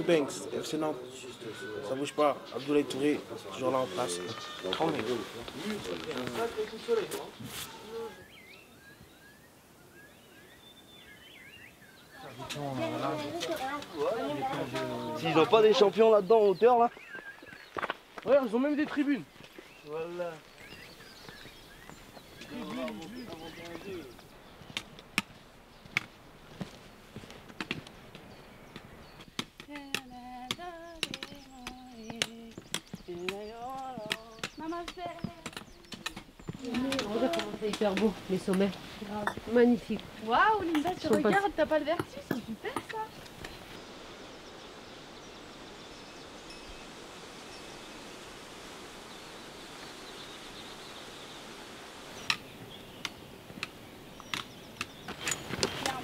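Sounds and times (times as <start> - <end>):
footsteps: 2.0 - 8.2, 16.9 - 43.8
trekking poles tapping on stone: 27.5 - 39.6, 40.6 - 43.6.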